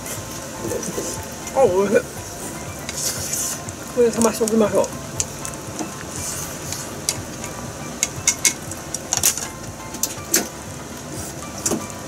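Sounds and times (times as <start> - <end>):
pot simmering with hiss: 0.0 - 12.0
small pops and crackles: 4.1 - 6.1.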